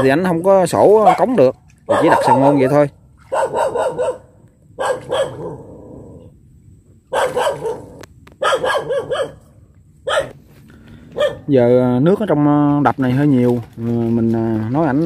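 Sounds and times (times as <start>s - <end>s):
dog barking: 1.0s - 5.6s, 7.1s - 10.4s, 11.2s - 11.5s.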